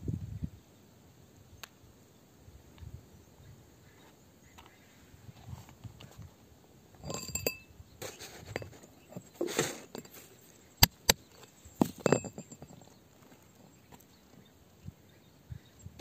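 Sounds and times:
metal rod striking rock: 7.0s - 7.7s, 10.8s - 12.9s
gritty scrape on soil: 7.0s - 12.2s.

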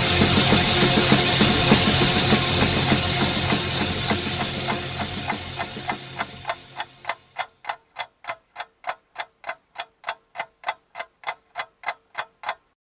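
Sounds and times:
rock music: 0.0s - 7.0s
even ticking: 0.4s - 12.8s.

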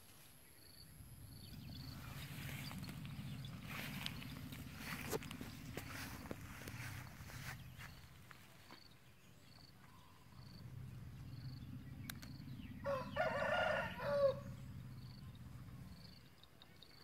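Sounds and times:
rooster crowing: 12.8s - 14.6s.

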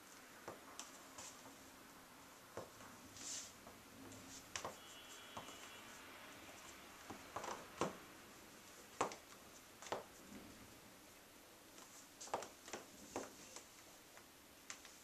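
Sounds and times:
high heels clicking on tile: 4.5s - 5.8s, 7.0s - 8.0s, 8.9s - 10.1s, 12.2s - 13.7s.

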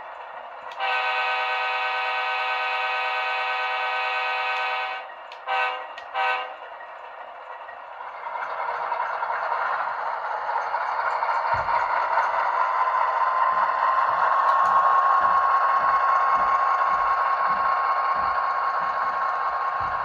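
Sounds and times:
locomotive engine and running noise: 0.0s - 20.0s
diesel air horn blasts: 0.7s - 6.6s.

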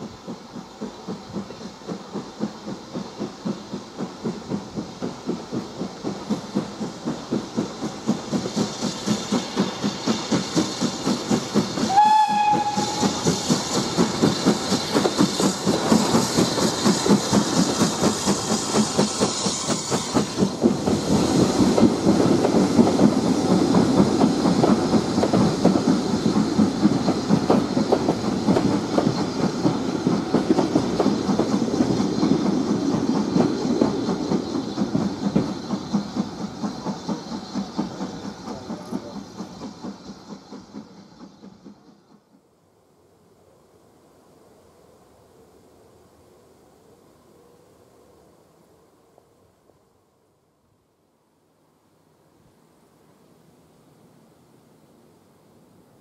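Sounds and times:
train wheels over rail joints: 0.0s - 42.6s
steam locomotive exhaust beats: 0.0s - 46.7s
steam locomotive whistle: 11.8s - 13.7s.

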